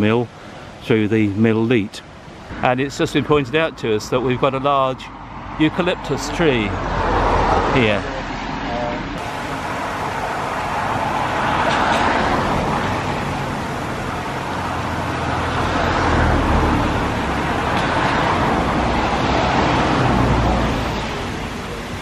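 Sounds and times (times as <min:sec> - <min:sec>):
cars passing: 0:00.0 - 0:22.0.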